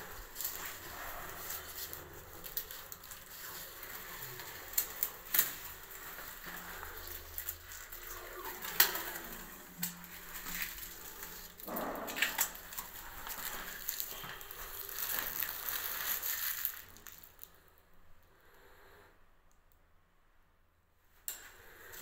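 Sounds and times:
shoes clicking on tiled floor: 0.0s - 17.4s.

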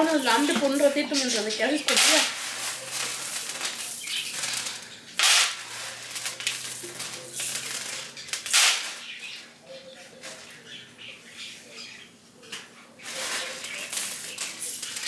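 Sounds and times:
beans sliding: 0.0s - 9.1s, 13.0s - 15.0s
dry beans clicking and rattling: 0.0s - 9.4s, 12.6s - 15.0s.

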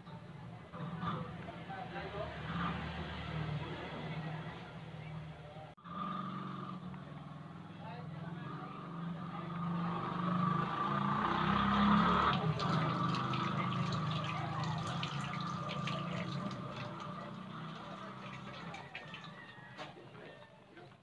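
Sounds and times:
broth boiling and bubbling: 12.3s - 19.5s.

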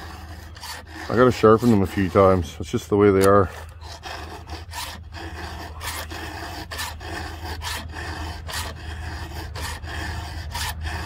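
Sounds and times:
file rasping on chainsaw chain: 0.0s - 11.0s.

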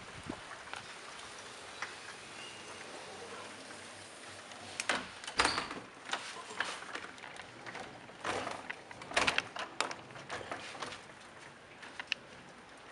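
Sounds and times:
window frame knocks and clicks: 7.6s - 10.9s.

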